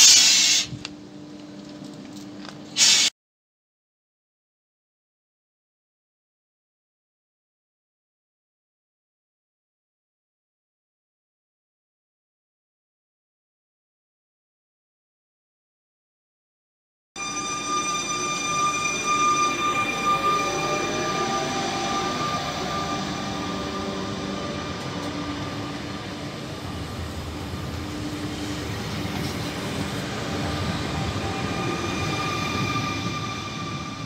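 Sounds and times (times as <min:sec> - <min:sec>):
electric train accelerating past: 0:17.2 - 0:34.0
high motor whine: 0:17.2 - 0:34.0.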